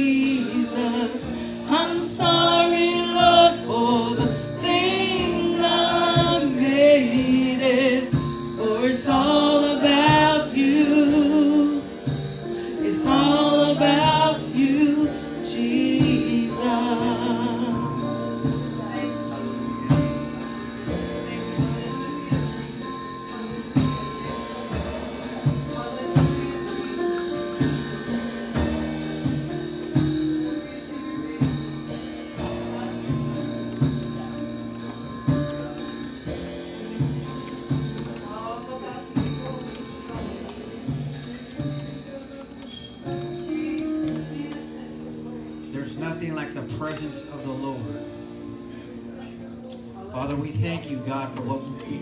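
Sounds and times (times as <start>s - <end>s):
woman singing with vibrato: 0.0s - 12.0s, 12.7s - 18.8s
sustained keyboard chords: 0.0s - 52.0s.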